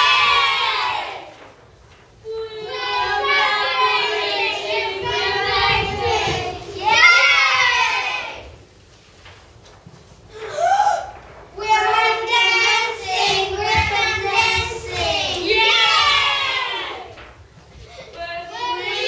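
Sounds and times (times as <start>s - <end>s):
children singing: 0.0s - 1.3s, 2.2s - 8.6s, 11.6s - 17.2s, 18.3s - 19.0s.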